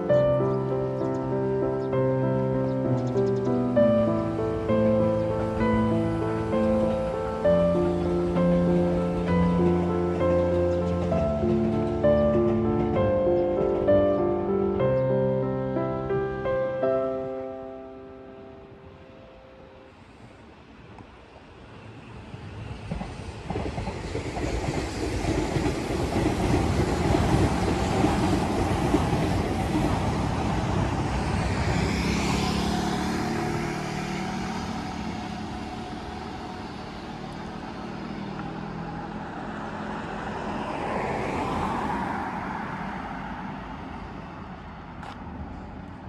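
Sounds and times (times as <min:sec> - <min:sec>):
cars passing: 0:00.0 - 0:46.0
electric train rumbling past: 0:00.0 - 0:46.0
motor scooter passing: 0:27.3 - 0:43.7.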